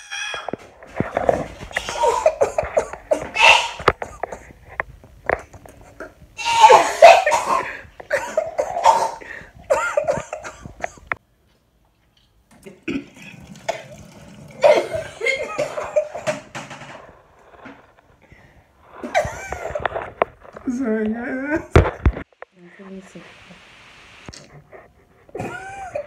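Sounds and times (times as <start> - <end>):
person coughing: 1.8 - 4.5, 6.4 - 11.1, 14.6 - 16.3.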